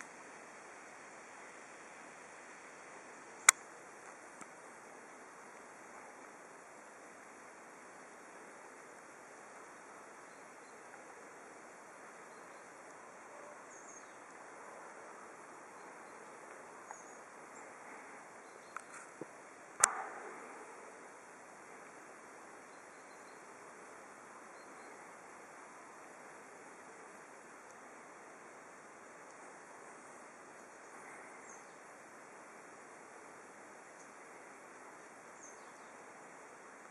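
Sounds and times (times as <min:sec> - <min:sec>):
outdoor background hiss: 0:00.0 - 0:36.9
faint high chirps: 0:09.6 - 0:19.1, 0:24.4 - 0:25.3.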